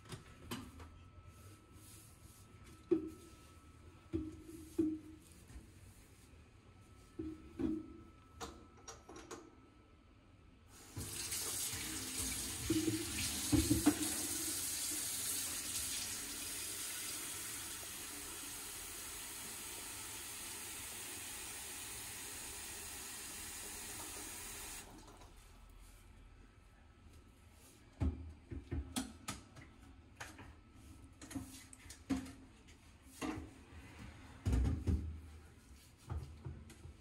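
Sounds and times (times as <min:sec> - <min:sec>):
faucet running water into kettle: 0:10.8 - 0:24.9.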